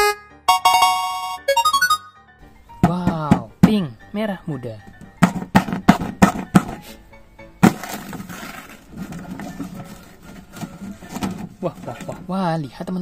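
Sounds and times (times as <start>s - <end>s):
paper ripping: 7.6s - 12.1s
paper crinkling: 7.6s - 12.3s.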